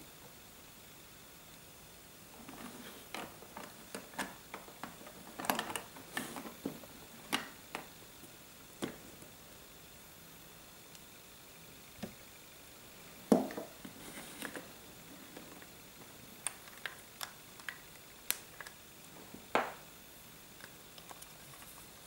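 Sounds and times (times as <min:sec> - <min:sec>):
plastic bricks clicking: 0:02.5 - 0:07.9.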